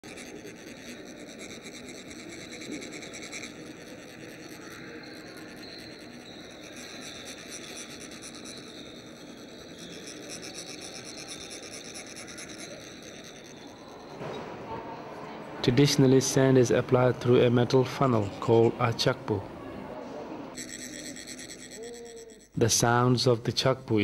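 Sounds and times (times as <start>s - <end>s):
metal rod rasping ridged metal: 0.0s - 14.2s, 20.6s - 22.6s.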